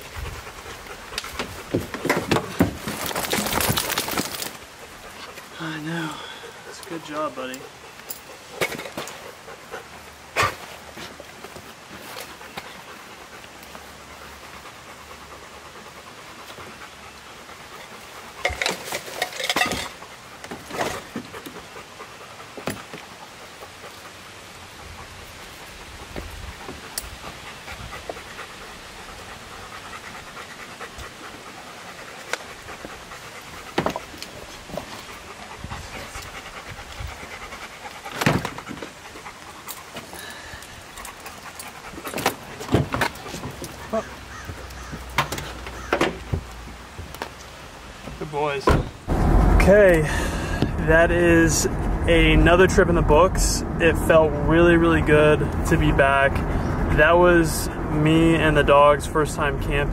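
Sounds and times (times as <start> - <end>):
dog panting: 0.0 - 1.9, 4.8 - 18.5, 19.9 - 46.6
knocks and thumps: 1.4 - 4.4, 42.1 - 43.8, 48.0 - 49.6.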